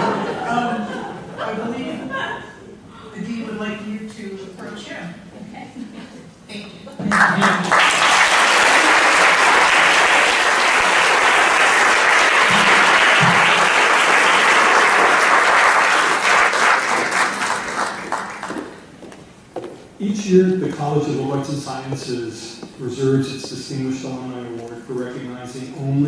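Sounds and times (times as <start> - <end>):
audience applauding: 7.1 - 18.9.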